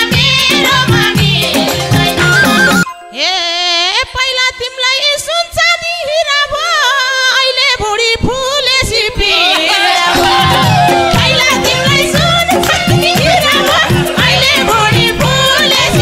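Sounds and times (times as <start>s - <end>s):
person singing with vibrato: 0.0s - 16.0s
folk band playing: 10.1s - 16.0s.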